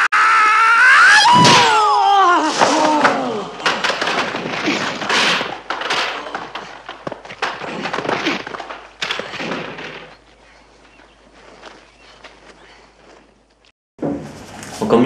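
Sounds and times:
thuds and crashes into chairs: 1.3s - 1.8s, 2.5s - 10.2s.

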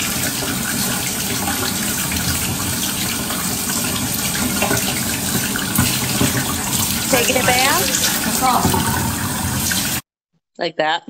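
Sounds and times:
tap water running into bathtub: 0.0s - 10.0s.

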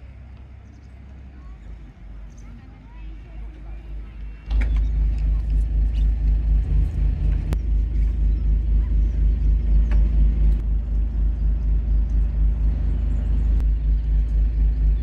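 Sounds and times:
ferry engine throbbing: 3.8s - 15.0s.

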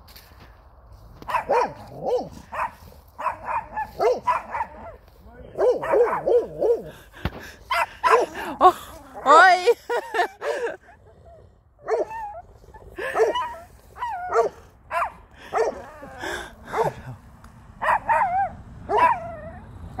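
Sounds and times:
small dog yapping: 17.8s - 19.6s.

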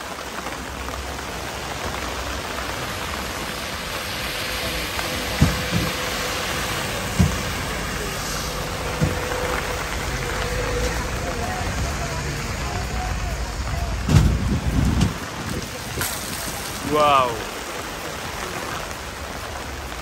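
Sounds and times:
rain on street and canopy: 0.0s - 20.0s
bus driving past: 3.4s - 15.0s.

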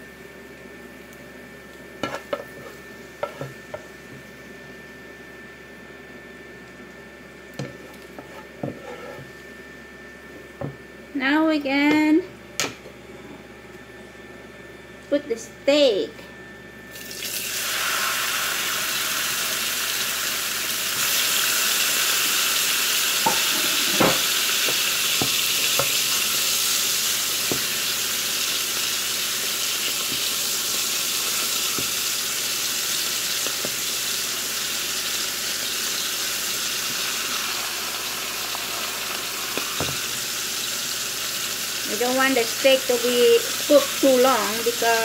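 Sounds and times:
steak sizzling in frying pan: 17.0s - 45.0s.

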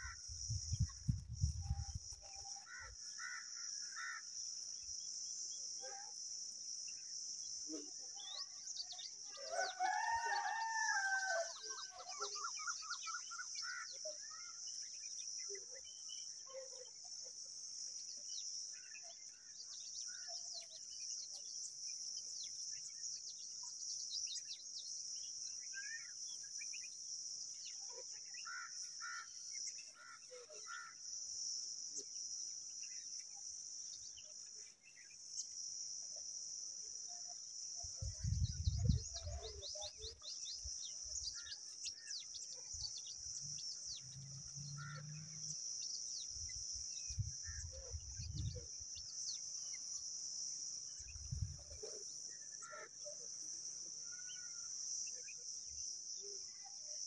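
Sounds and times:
insects droning: 0.0s - 57.0s
rooster crowing: 9.4s - 11.6s
bird chirps: 37.1s - 50.1s.

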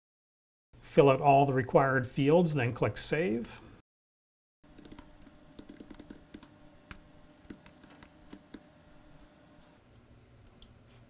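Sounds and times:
typing on computer keyboard: 4.8s - 6.5s.

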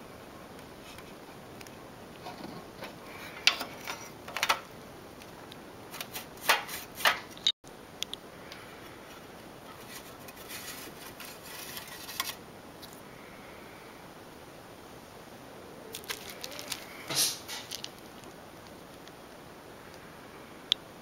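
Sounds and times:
soft rubbing and scraping: 2.2s - 4.2s, 9.0s - 12.4s.

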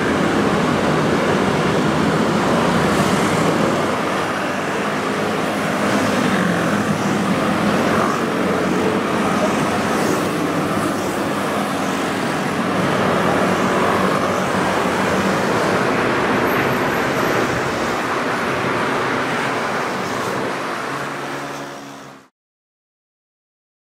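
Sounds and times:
busy road traffic: 0.0s - 22.3s.

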